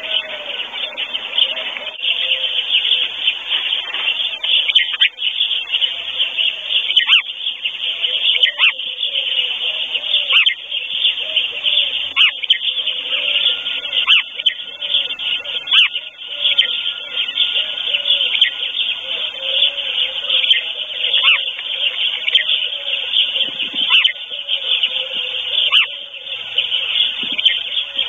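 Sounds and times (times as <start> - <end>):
low arched bird notes: 0.0 - 28.0
songbirds chirping: 0.0 - 28.0.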